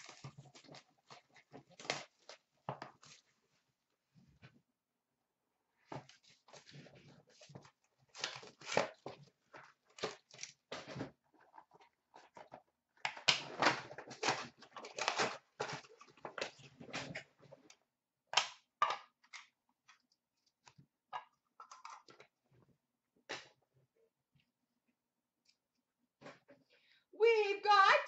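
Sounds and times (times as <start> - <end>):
plastic and cardboard crinkling: 0.0 - 3.4, 5.8 - 17.7.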